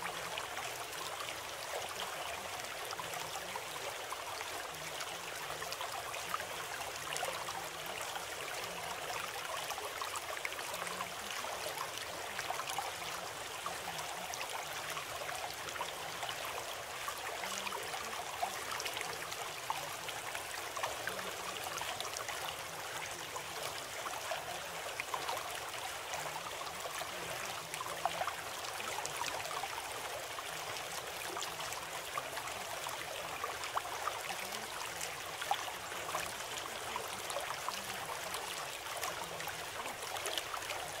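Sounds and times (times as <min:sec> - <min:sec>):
running water: 0:00.0 - 0:41.0.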